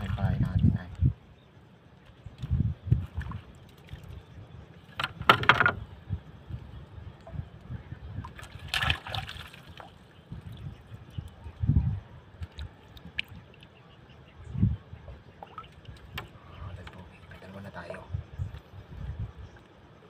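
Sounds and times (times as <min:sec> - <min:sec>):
water lapping against boat hull: 0:02.0 - 0:05.9, 0:12.4 - 0:14.0, 0:15.0 - 0:18.7.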